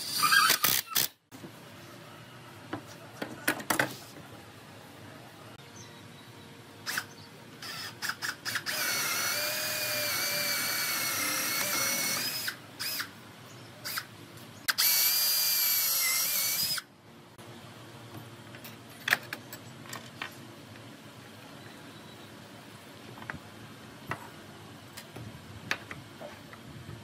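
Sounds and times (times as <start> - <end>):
power drill boring into wood: 7.6 - 13.1.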